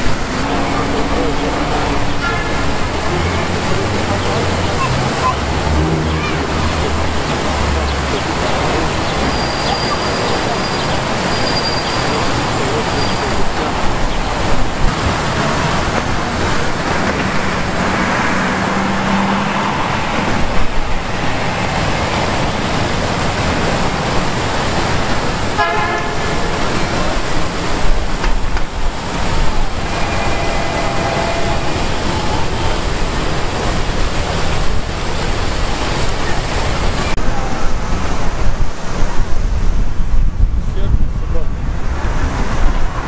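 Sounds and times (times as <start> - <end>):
fountain water splashing: 0.0 - 43.0
traffic: 0.0 - 43.0
vehicle horn toots: 25.6 - 26.8, 29.8 - 32.6.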